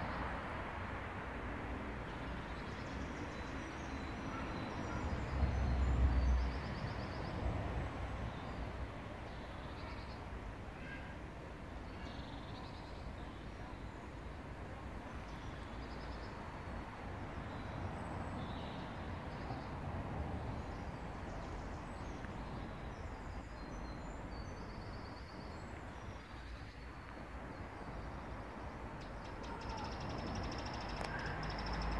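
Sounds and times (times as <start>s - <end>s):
small birds chirping: 21.3s - 31.9s
bird trill: 29.1s - 31.9s.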